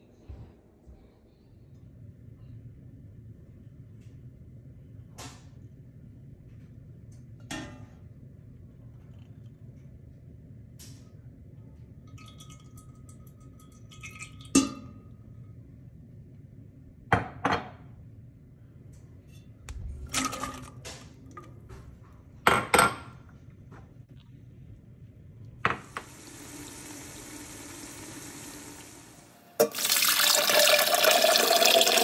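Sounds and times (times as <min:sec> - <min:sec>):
steady low hum: 0:23.1 - 0:29.8.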